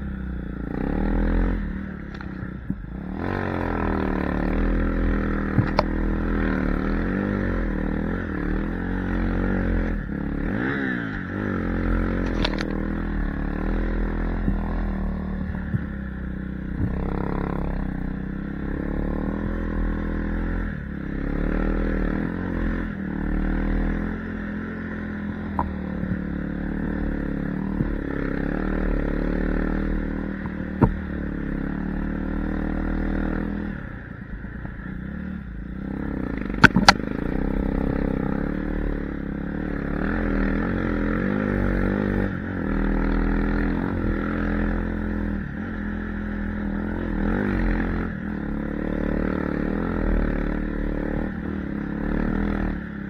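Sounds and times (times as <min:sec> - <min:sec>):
dirt bike engine revving: 0:00.0 - 0:34.0, 0:35.0 - 0:53.0.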